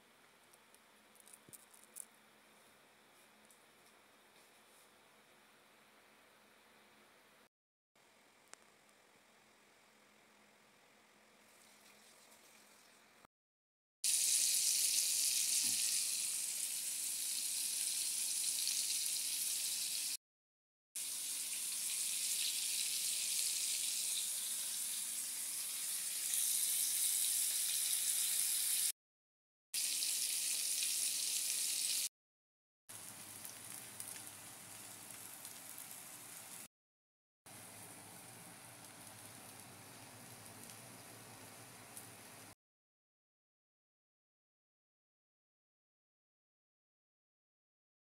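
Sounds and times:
food sizzling in hot oil: 0:14.0 - 0:20.2, 0:21.0 - 0:29.0, 0:29.8 - 0:32.1, 0:32.9 - 0:36.7.

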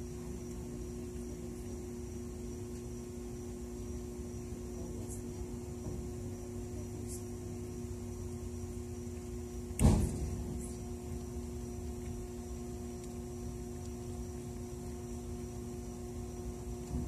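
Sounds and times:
steady two-tone hum: 0:00.0 - 0:17.0
faint high ticks: 0:11.2 - 0:15.5.

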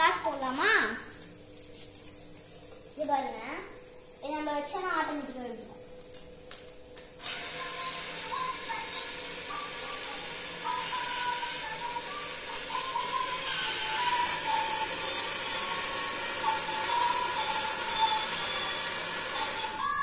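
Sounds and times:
small motor whirring: 0:07.2 - 0:20.0.

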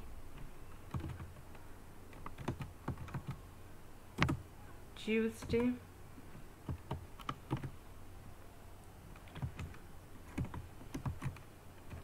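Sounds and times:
keyboard typing: 0:00.4 - 0:03.4, 0:04.2 - 0:04.4, 0:06.6 - 0:07.8, 0:09.1 - 0:12.0.

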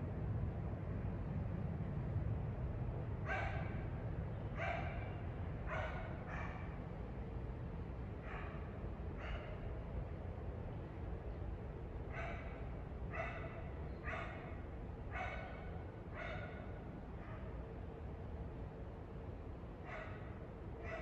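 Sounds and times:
low background noise: 0:00.0 - 0:21.0.

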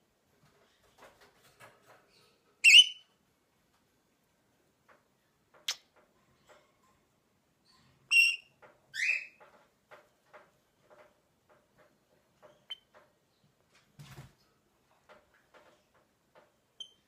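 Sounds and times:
parrot shrill calls: 0:02.6 - 0:03.0.

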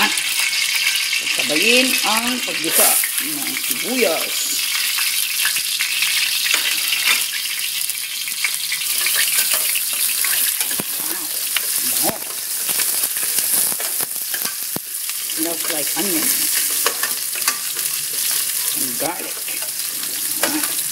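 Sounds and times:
onion and garlic sizzling in oil: 0:00.0 - 0:20.9
utensil tapping and scraping a pan: 0:06.4 - 0:07.4, 0:08.4 - 0:14.9, 0:15.6 - 0:20.9.

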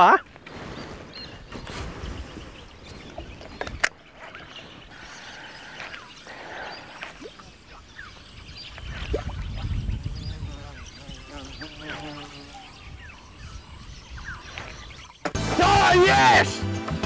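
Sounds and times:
lure splashing on water: 0:06.9 - 0:09.5.

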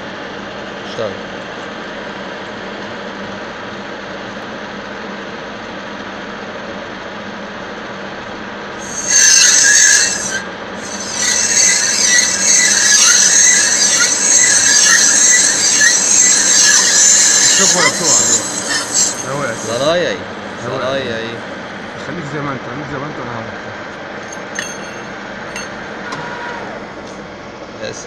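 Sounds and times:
lathe running: 0:08.7 - 0:22.4, 0:23.0 - 0:28.0
cutting tool squealing on metal: 0:08.8 - 0:20.0, 0:24.2 - 0:26.8.

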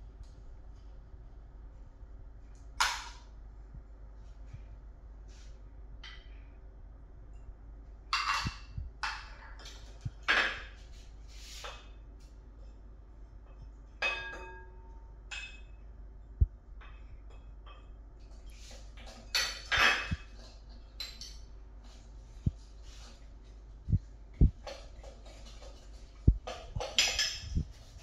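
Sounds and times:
kitchen items knocking and scraping: 0:02.8 - 0:03.3, 0:08.1 - 0:12.0, 0:13.4 - 0:15.7, 0:16.8 - 0:28.0
ceramic dishes clinking: 0:14.0 - 0:15.8, 0:19.1 - 0:20.4, 0:26.5 - 0:27.6.

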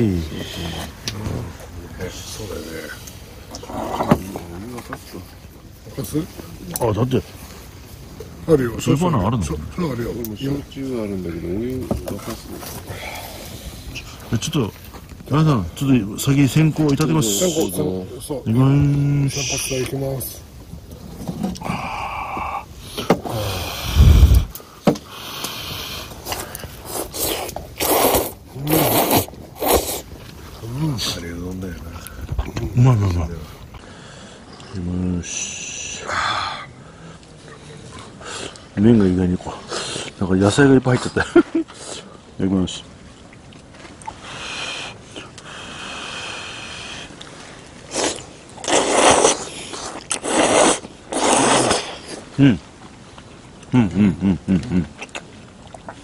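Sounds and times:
person slurping noodles: 0:23.2 - 0:24.5, 0:25.2 - 0:30.1, 0:47.9 - 0:52.2.

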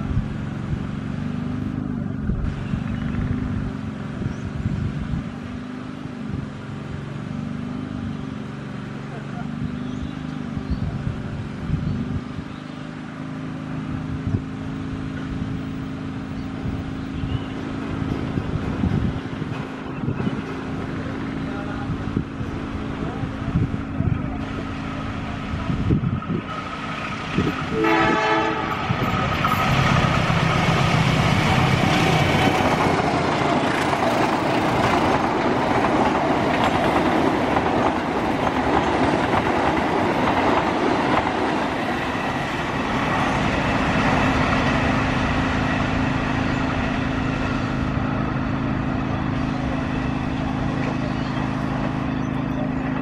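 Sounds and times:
train wheels rumbling on rails: 0:00.0 - 0:53.0
locomotive engine tone: 0:05.5 - 0:53.0
train horn blast: 0:27.7 - 0:29.2.

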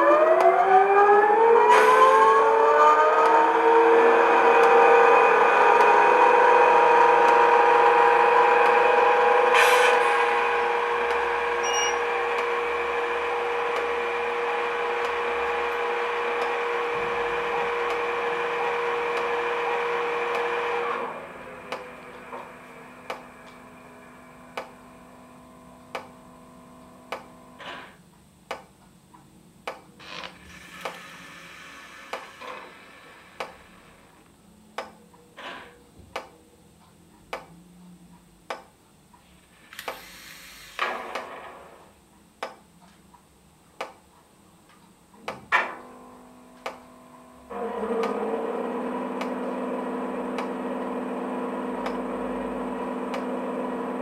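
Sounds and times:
locomotive running sound: 0:00.0 - 0:28.0, 0:30.0 - 0:35.9, 0:45.2 - 0:54.0
regular ticking: 0:28.0 - 0:30.0, 0:33.4 - 0:35.4, 0:36.1 - 0:39.3
short air hisses: 0:39.7 - 0:40.9.

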